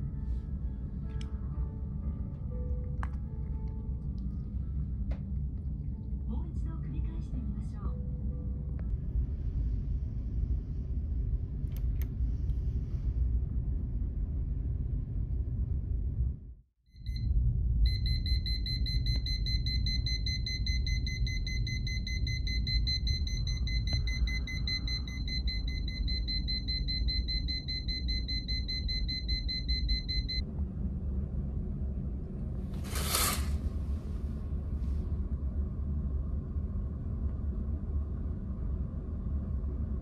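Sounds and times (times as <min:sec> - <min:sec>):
low rumble: 0:00.0 - 0:40.0
alarm clock beeping: 0:17.9 - 0:30.4.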